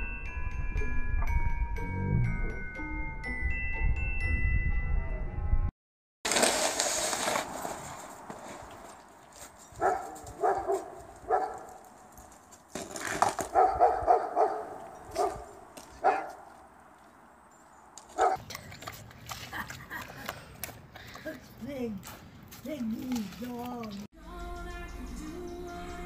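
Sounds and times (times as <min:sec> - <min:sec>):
dog barking: 0:09.8 - 0:11.7, 0:13.5 - 0:16.5, 0:18.2 - 0:18.4.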